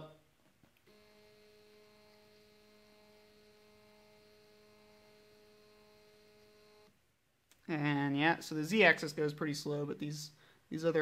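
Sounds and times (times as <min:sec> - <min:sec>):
stepper motor whine: 0:00.9 - 0:06.9.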